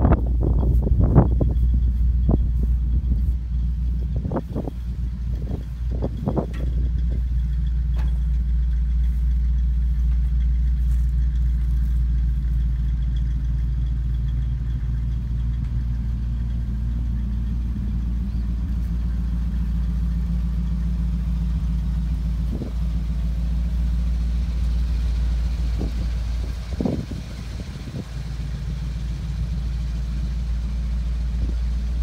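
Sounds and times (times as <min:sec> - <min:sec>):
truck engine idling: 0:00.0 - 0:32.0.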